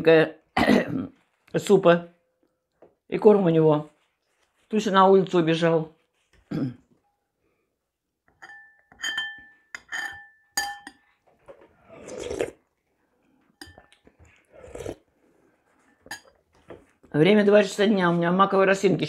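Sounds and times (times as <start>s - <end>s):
metal spoon clinking on bowl: 8.3s - 11.1s, 13.6s - 14.0s, 16.0s - 16.4s
sipping soup from spoon: 11.8s - 12.7s, 13.6s - 15.1s.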